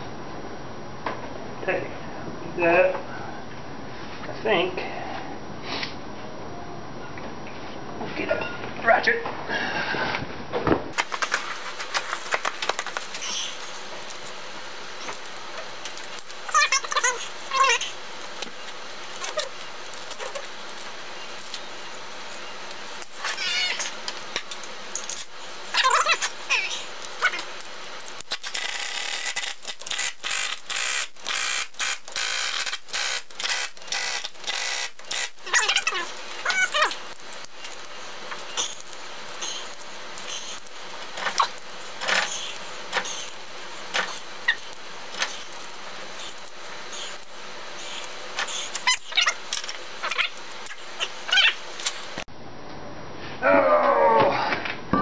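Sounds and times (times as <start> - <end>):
workshop background noise: 7.0 - 52.3
pneumatic impact wrench bursts: 28.2 - 35.6, 38.5 - 52.0.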